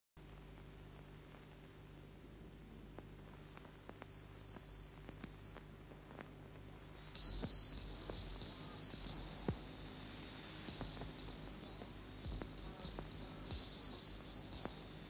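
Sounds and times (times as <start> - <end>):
high insect trill: 3.2 - 15.0.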